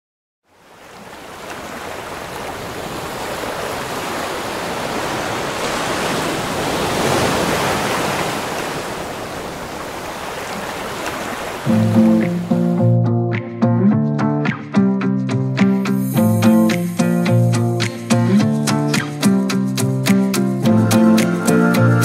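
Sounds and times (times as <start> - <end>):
waves rushing: 0.5 - 12.8.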